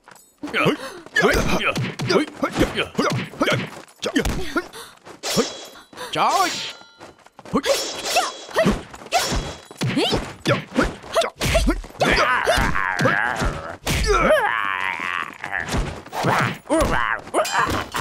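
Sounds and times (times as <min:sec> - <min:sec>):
fighters grunting and yelling: 0:00.4 - 0:06.6, 0:07.5 - 0:18.0
punch and kick impacts: 0:01.4 - 0:04.6, 0:08.5 - 0:14.3.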